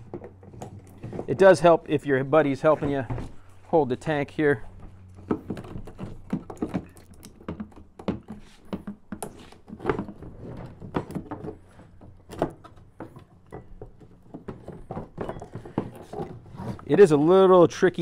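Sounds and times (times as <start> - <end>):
plastic fuel tank knocks and rustles: 2.6 - 4.1, 4.7 - 16.9.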